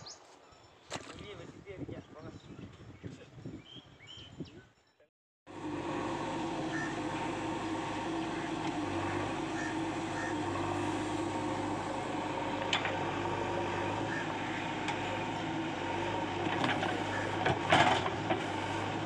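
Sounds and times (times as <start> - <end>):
diesel engine running: 5.5 - 19.0.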